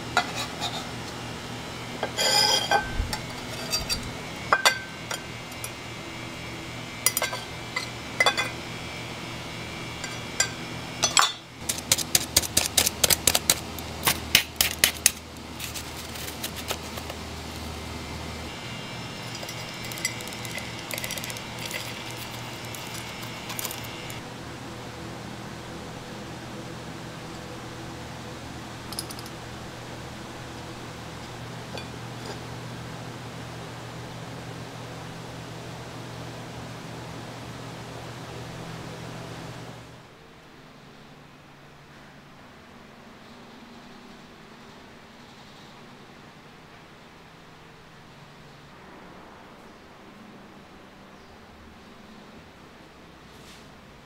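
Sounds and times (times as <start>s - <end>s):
low hum: 0.0s - 25.6s
kitchen utensils clinking: 0.2s - 0.9s, 2.0s - 5.8s, 7.0s - 8.6s, 10.0s - 17.2s, 19.2s - 24.2s, 28.9s - 29.3s
metal spoon scraping in bowl: 0.2s - 1.0s, 2.0s - 5.8s, 19.2s - 24.2s.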